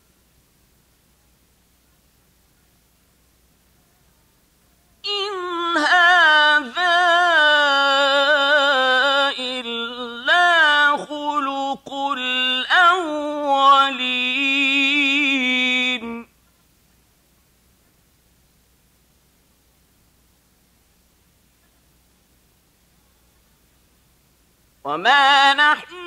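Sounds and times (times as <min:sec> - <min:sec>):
man chanting recitation: 0:05.0 - 0:16.3, 0:24.9 - 0:26.0.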